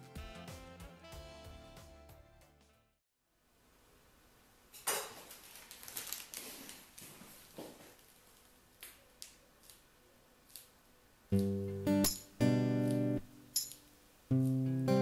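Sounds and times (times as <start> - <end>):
plastic rustling: 5.0 - 10.8.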